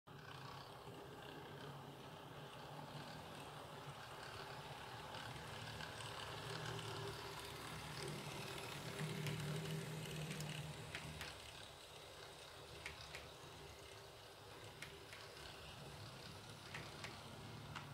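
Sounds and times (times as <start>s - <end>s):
model train running on track: 0.1s - 17.9s.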